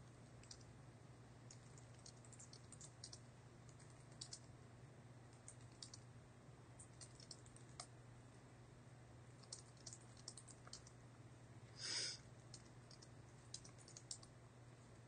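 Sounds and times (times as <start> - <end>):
low steady hum: 0.0 - 15.0
typing on computer keyboard: 0.3 - 0.7, 1.5 - 4.5, 5.4 - 6.0, 6.8 - 7.9, 9.4 - 11.0, 12.5 - 14.3.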